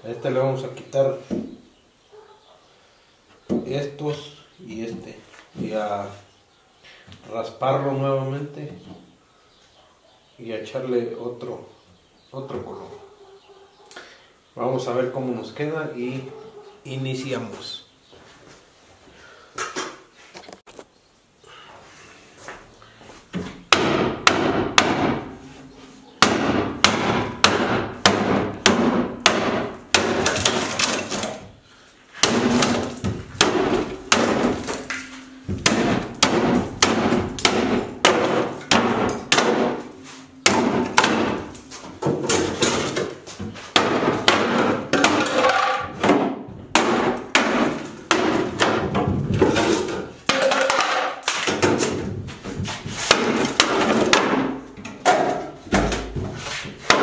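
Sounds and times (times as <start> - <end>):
hammer striking wood: 23.7 - 25.4, 26.2 - 31.2, 32.2 - 52.1, 53.0 - 57.0
wood splintering: 26.2 - 31.5, 32.2 - 52.0.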